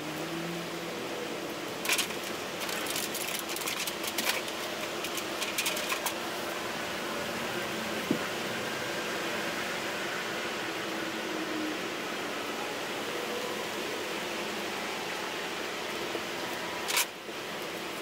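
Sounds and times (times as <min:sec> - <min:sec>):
rustling and crackling of sheeting: 0:01.7 - 0:06.5.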